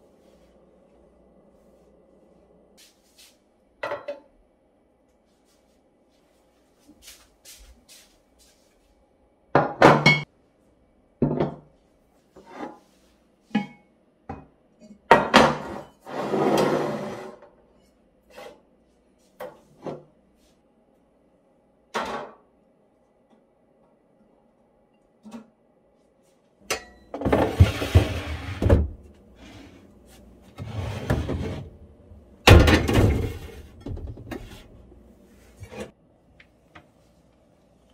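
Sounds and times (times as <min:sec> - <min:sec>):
pot scraping across counter: 0:15.6 - 0:17.5, 0:27.2 - 0:28.7, 0:30.5 - 0:31.8.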